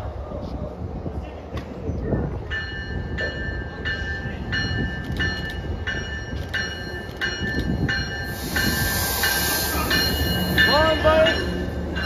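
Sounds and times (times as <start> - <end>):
low rumble of train: 0.0 - 12.0
train warning bell ringing: 2.4 - 12.0
hiss: 8.3 - 10.1.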